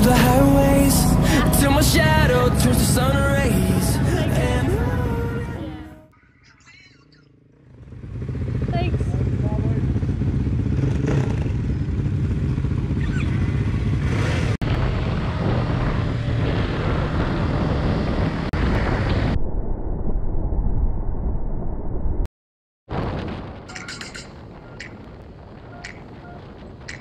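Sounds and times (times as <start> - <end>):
motorcycle engine running: 7.3 - 18.4
wind noise: 14.6 - 22.2, 22.9 - 27.0.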